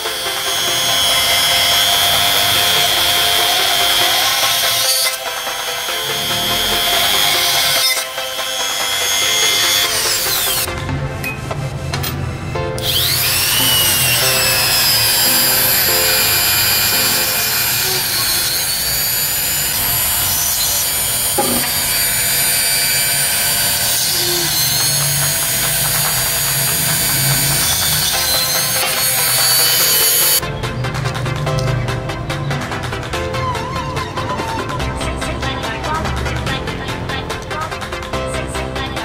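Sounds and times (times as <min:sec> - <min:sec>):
electric drill whining: 0:00.0 - 0:10.7, 0:12.8 - 0:30.4.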